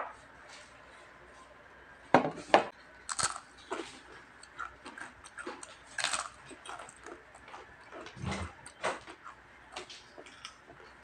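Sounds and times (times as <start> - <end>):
crunching and chewing crispy food: 3.0 - 11.0.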